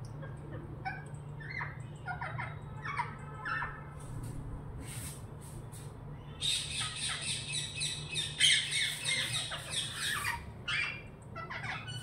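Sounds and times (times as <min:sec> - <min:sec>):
parakeet screeching squawks: 0:00.8 - 0:03.8, 0:06.4 - 0:12.0.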